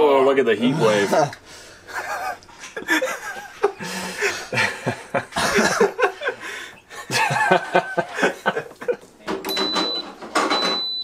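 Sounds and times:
men laughing: 0.6 - 9.1.

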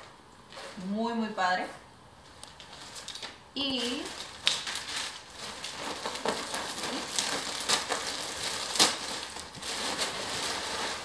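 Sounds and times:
plastic bags rustling and crinkling: 2.2 - 11.0.

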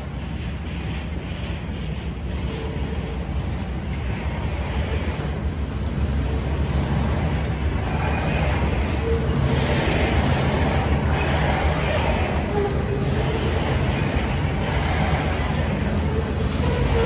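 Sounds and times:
train wheels rumbling on track: 0.0 - 17.0
faint squeals: 7.8 - 17.0.

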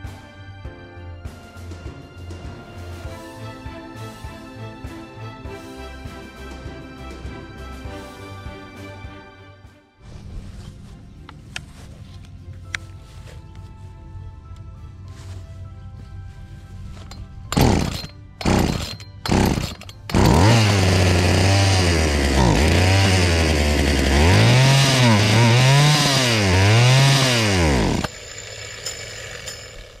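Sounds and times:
starter cord pulls: 17.0 - 30.0
chainsaw engine running and revving: 17.5 - 30.0.

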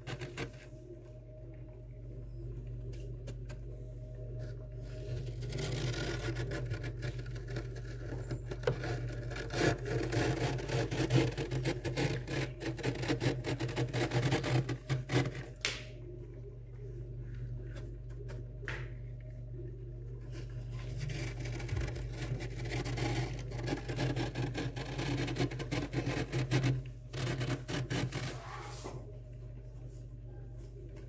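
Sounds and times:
steady low hum: 0.0 - 31.0
fingers scraping frost: 5.0 - 15.6, 20.7 - 28.9.

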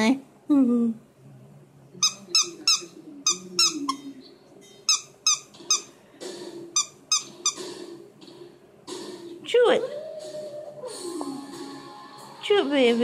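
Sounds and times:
dog toy squeaking: 2.0 - 4.0, 4.8 - 5.9, 6.8 - 7.6.

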